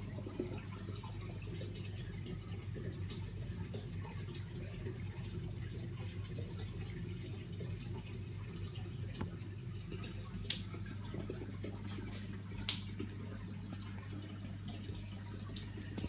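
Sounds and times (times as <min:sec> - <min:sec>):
water trickling and dripping: 0:00.0 - 0:16.0
loud water drips: 0:07.4 - 0:16.0.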